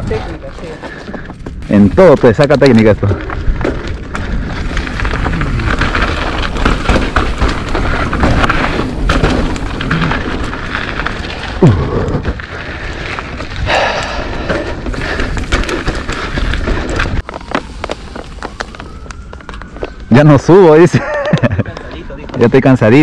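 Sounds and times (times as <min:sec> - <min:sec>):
bike clicks and rattles: 0:00.0 - 0:20.1, 0:20.9 - 0:22.8
tyres on dirt and stones: 0:00.0 - 0:23.0
wind rumble on microphone: 0:02.9 - 0:20.1.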